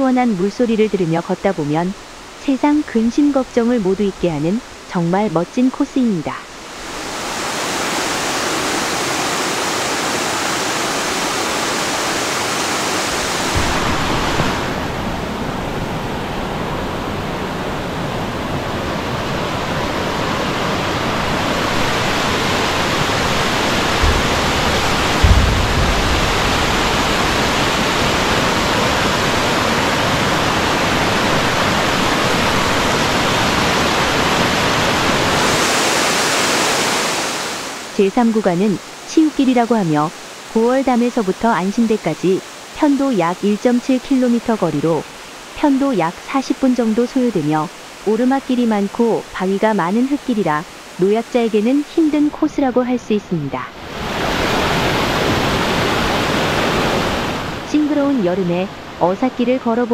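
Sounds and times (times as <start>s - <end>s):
stream rushing over rocks: 0.4s - 52.7s, 53.3s - 59.9s
low thumps: 13.4s - 15.2s, 22.5s - 28.6s.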